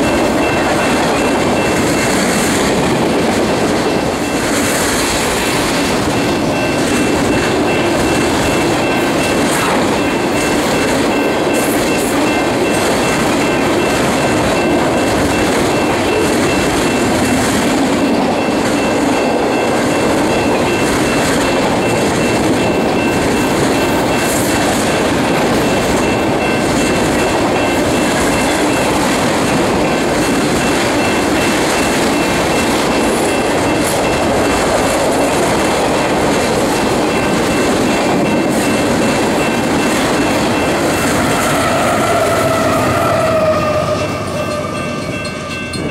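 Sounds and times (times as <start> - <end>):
freight train wheels rumbling: 0.0 - 45.9.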